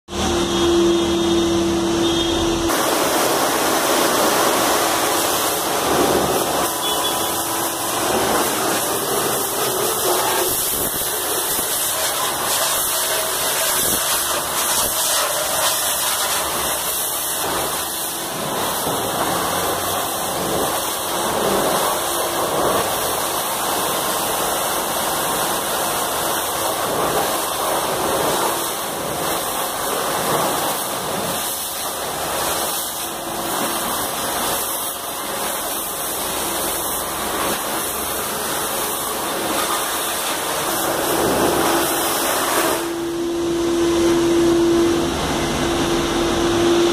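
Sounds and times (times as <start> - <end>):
water jets spraying: 2.7 - 43.3
machine hum: 35.3 - 46.9.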